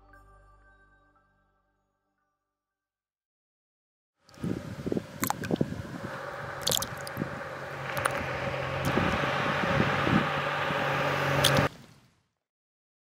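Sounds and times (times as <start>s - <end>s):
motorcycle engine approaching: 4.4s - 11.7s.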